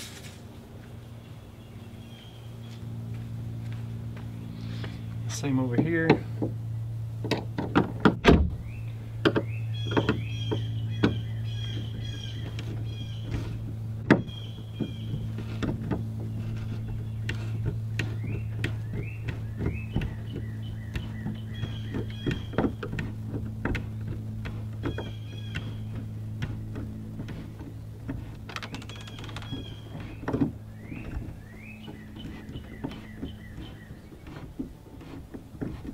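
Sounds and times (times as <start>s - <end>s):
steady low hum: 0.0s - 35.9s
screw squeaking: 9.3s - 35.9s.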